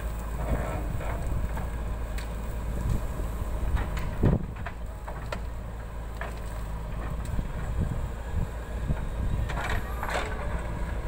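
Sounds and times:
diesel engine running under load: 0:00.0 - 0:11.0
clunks and knocks: 0:03.6 - 0:07.8, 0:08.9 - 0:11.0.

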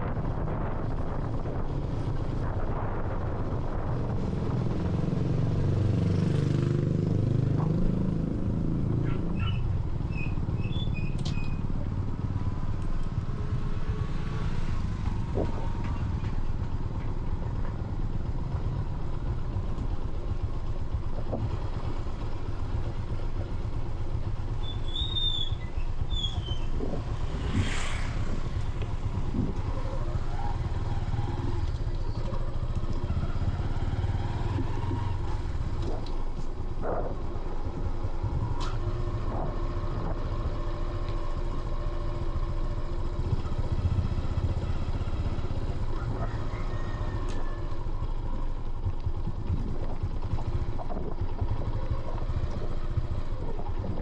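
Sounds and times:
vehicle engine rumbling: 0:00.0 - 0:54.0.

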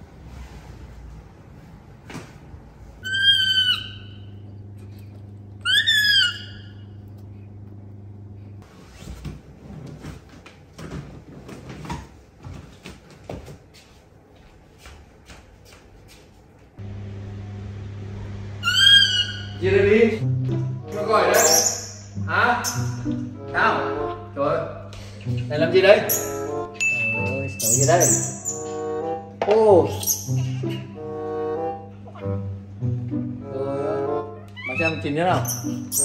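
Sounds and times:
rustles and knocks of bedding: 0:08.7 - 0:16.8
comic whistling sound effect: 0:21.3 - 0:22.0, 0:27.2 - 0:28.9.

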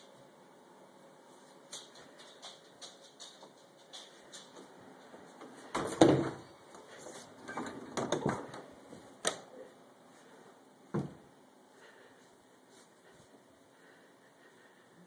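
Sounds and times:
wooden doors knocking and bumping: 0:05.8 - 0:06.4, 0:07.6 - 0:08.7.

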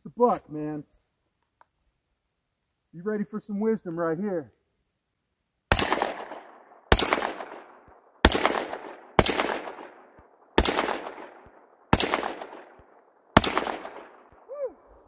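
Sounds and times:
shotgun shots with echo: 0:05.7 - 0:14.5.

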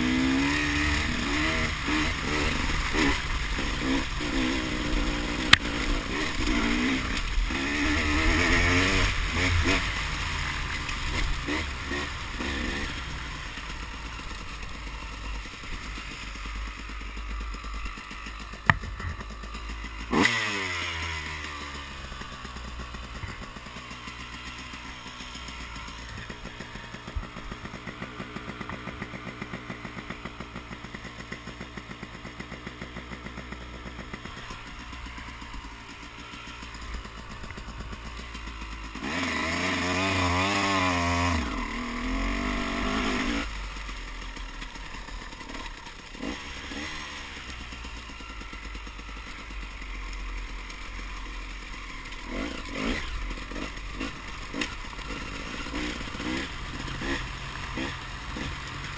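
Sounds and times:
dirt bike engine revving: 0:00.0 - 0:58.9.

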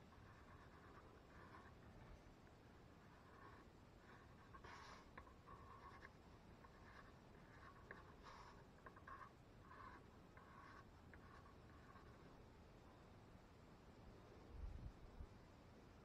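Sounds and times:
pencil scratching on plywood: 0:00.0 - 0:12.5.

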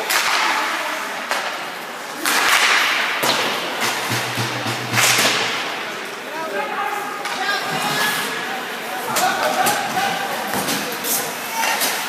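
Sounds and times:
sticks striking puck: 0:00.0 - 0:00.7, 0:02.2 - 0:05.7.

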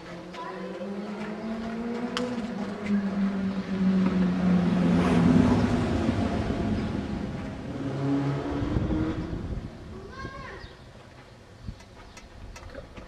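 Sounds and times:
vehicle engine passing by: 0:00.0 - 0:10.0.

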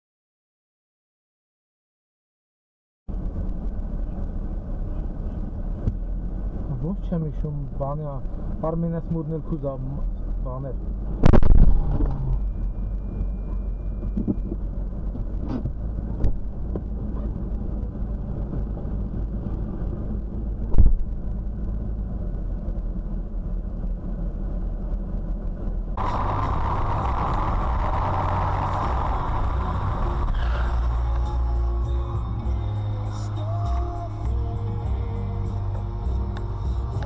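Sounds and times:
engine and cabin rumble: 0:03.1 - 0:37.0
road and traffic noise: 0:03.1 - 0:37.0
sharp thump: 0:11.2 - 0:12.2, 0:20.7 - 0:21.1.

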